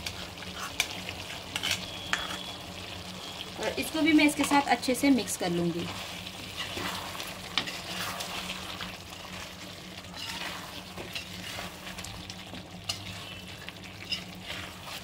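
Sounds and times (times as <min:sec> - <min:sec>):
metal spoon scraping a pan: 0:00.0 - 0:02.5, 0:06.0 - 0:09.3, 0:10.1 - 0:12.1, 0:12.8 - 0:15.0
soft sizzle: 0:00.0 - 0:15.0.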